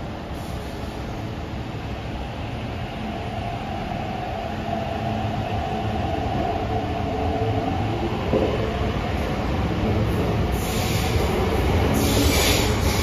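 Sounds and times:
train wheels rumbling: 0:00.0 - 0:13.0.

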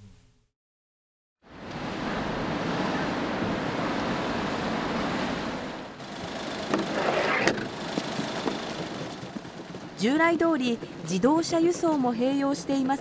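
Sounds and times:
truck engine and road noise: 0:01.6 - 0:13.0
wheeled dolly rattling: 0:06.3 - 0:11.8.

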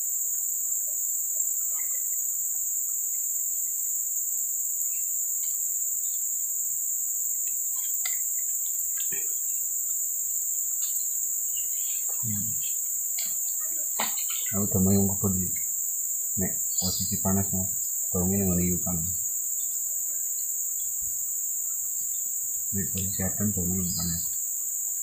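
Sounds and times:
high-pitched insect chorus: 0:00.0 - 0:25.0
faint ticks: 0:05.3 - 0:06.2, 0:07.3 - 0:10.1, 0:10.7 - 0:14.6.

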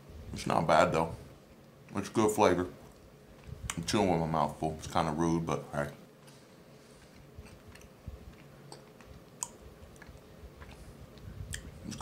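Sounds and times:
man chewing: 0:06.2 - 0:12.0.

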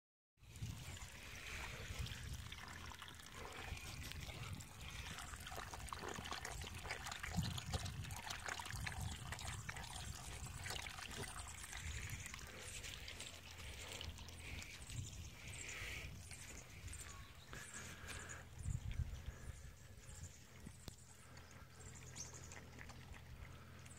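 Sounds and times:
water trickling onto dirt: 0:00.4 - 0:19.4
dog lapping water: 0:00.5 - 0:18.3, 0:21.2 - 0:23.9.

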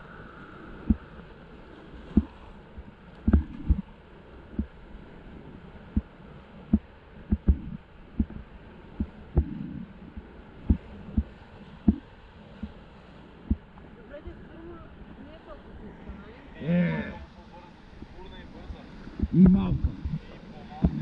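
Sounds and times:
muffled river rapids: 0:00.0 - 0:21.0
dull thumps of raft: 0:03.3 - 0:03.8, 0:20.8 - 0:21.0.

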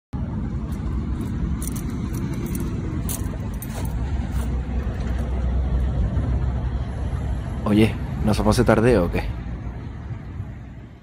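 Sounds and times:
road traffic rumble: 0:00.2 - 0:11.0
footsteps on gravelly grass: 0:01.0 - 0:05.2.

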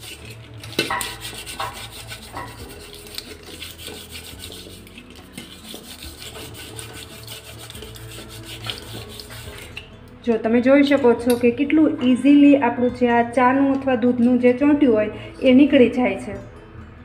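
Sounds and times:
blister pack scraping steel pot: 0:00.0 - 0:09.9.

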